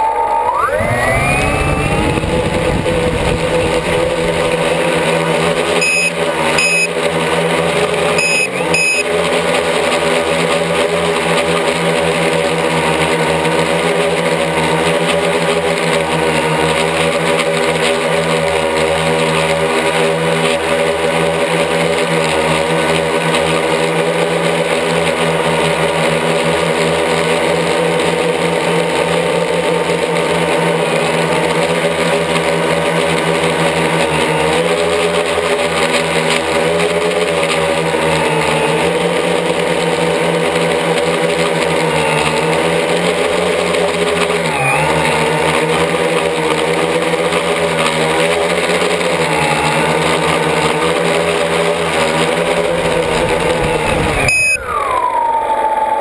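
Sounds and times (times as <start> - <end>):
quadcopter motors whining: 0.0 - 56.0
short high beeps: 5.8 - 7.0, 8.2 - 9.1, 54.2 - 54.7.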